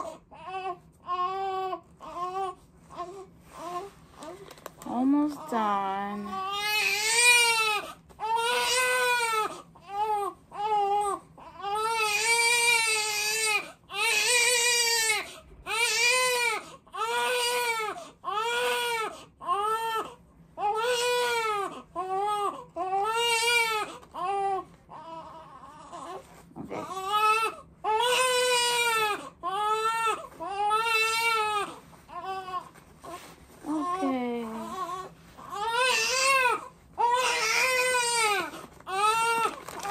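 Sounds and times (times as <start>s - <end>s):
baby crying: 0.0s - 3.9s, 6.3s - 32.7s, 33.7s - 39.9s.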